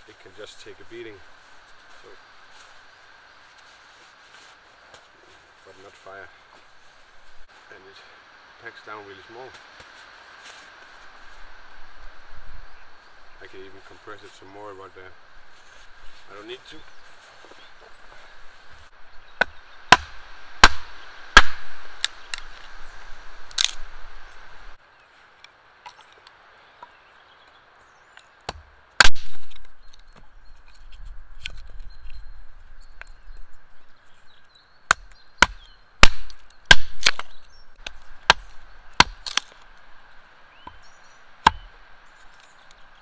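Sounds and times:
hatchet knocking wood on block: 0:41.4 - 0:41.7.

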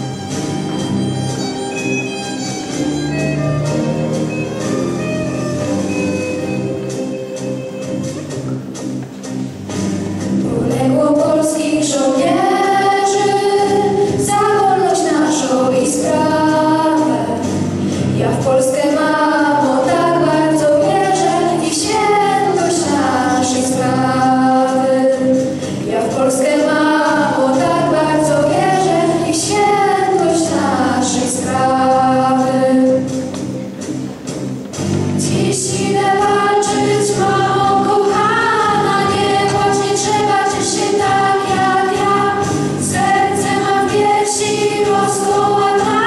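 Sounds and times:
instrumental accompaniment: 0:00.0 - 0:46.0
girls singing into microphones: 0:10.4 - 0:33.5, 0:35.2 - 0:46.0.

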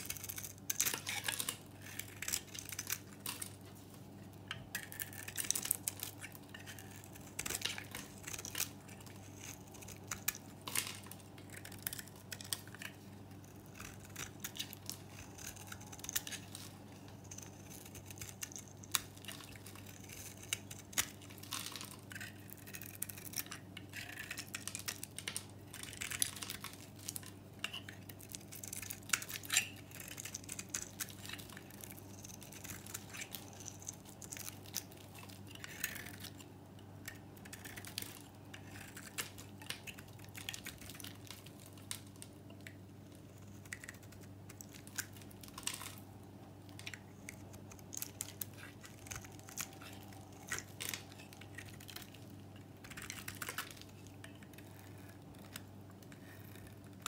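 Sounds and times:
knife scraping soap: 0:00.0 - 0:03.6, 0:04.5 - 0:36.4
faint low hum: 0:00.0 - 0:57.0.

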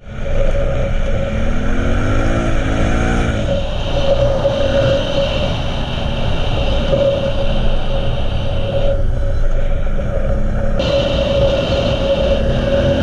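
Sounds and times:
atv engine droning: 0:00.0 - 0:13.0
bright hiss: 0:10.8 - 0:13.0.

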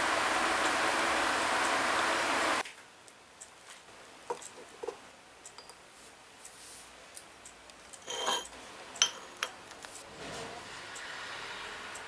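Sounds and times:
ceramic plates clinking: 0:08.0 - 0:09.6.

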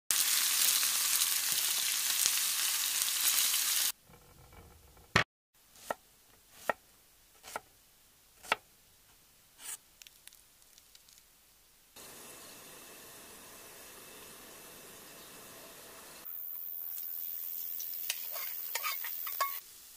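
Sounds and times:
steak sizzling in a pan: 0:00.1 - 0:04.0, 0:16.2 - 0:19.9
knife cutting on wooden board: 0:05.8 - 0:06.8, 0:07.4 - 0:07.7.

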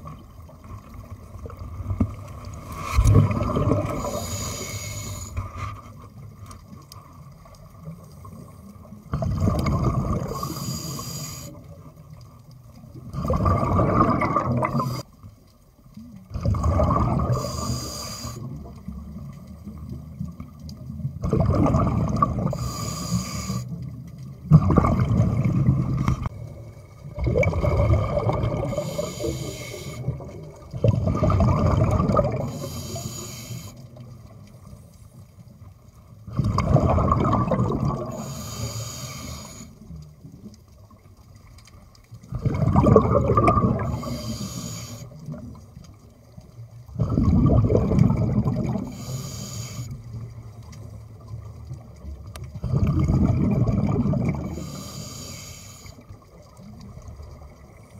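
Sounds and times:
exhaled bubbles rushing: 0:00.0 - 0:04.6, 0:09.1 - 0:10.5, 0:13.0 - 0:15.0, 0:16.3 - 0:17.7, 0:18.4 - 0:22.8, 0:24.2 - 0:32.7, 0:36.3 - 0:38.3, 0:42.2 - 0:44.2, 0:46.8 - 0:49.0, 0:51.2 - 0:54.7
diver breathing through regulator: 0:03.8 - 0:05.9, 0:10.2 - 0:11.7, 0:17.2 - 0:18.5, 0:22.4 - 0:23.8, 0:28.5 - 0:30.2, 0:32.3 - 0:33.9, 0:38.0 - 0:39.8, 0:43.7 - 0:45.2, 0:48.7 - 0:50.2, 0:54.4 - 0:56.1.

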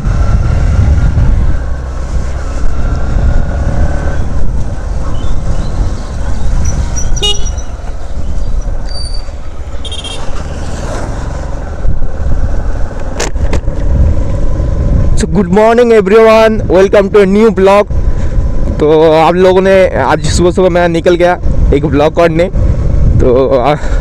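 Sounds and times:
motorcycle engine: 0:00.0 - 0:15.2
wind rumbling on microphone: 0:00.0 - 0:24.0
short horn beeps: 0:07.0 - 0:07.7, 0:09.8 - 0:10.3.

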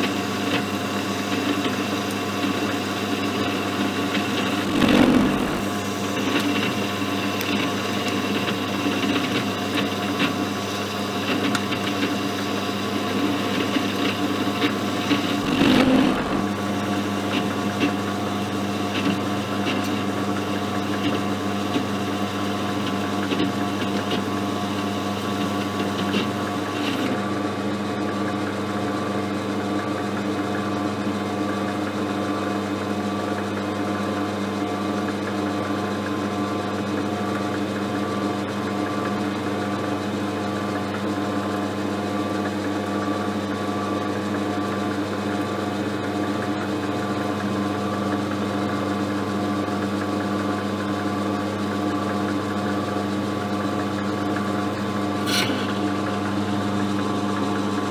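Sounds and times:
lathe motor hum: 0:04.6 - 0:05.8, 0:15.4 - 0:16.6.

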